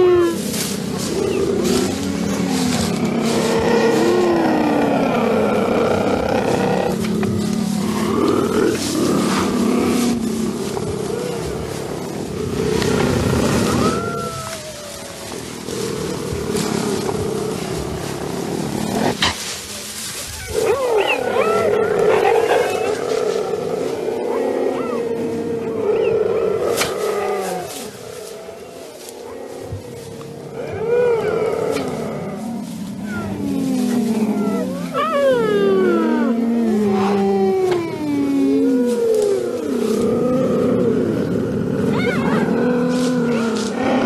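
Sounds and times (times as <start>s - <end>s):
cheetahs growling: 0.0s - 19.4s, 20.3s - 44.0s
steady rustling: 0.4s - 24.3s.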